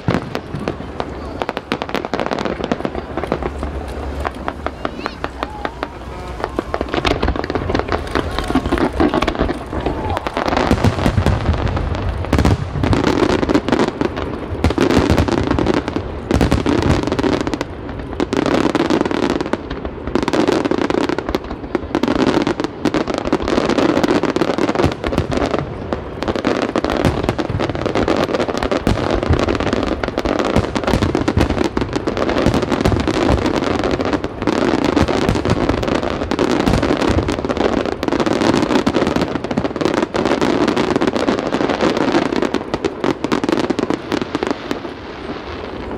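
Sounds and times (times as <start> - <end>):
firework shells bursting: 0.0 - 18.8
fireworks crackling: 0.0 - 45.9.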